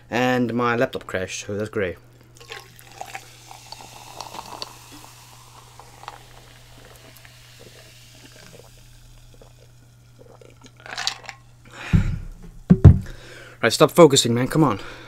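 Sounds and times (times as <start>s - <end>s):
steady low hum: 0.0s - 15.0s
drink pouring into a glass: 2.4s - 11.6s
soda fizzing: 2.4s - 11.7s.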